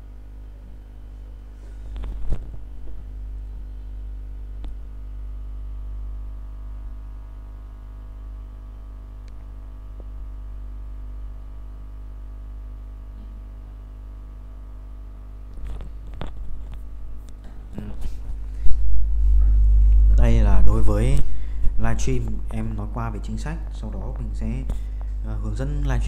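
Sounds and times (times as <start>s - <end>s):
low electrical hum: 0.0s - 26.0s
small click: 9.2s - 9.5s.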